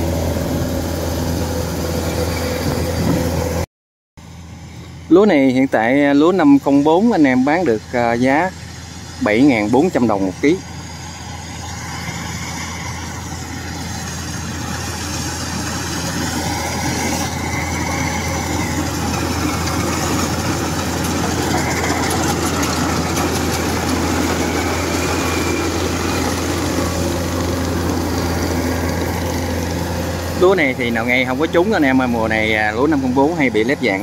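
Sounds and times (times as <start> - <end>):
combine harvester engine hum: 0.0 - 3.6, 4.2 - 34.0
mechanical clatter: 16.2 - 27.0.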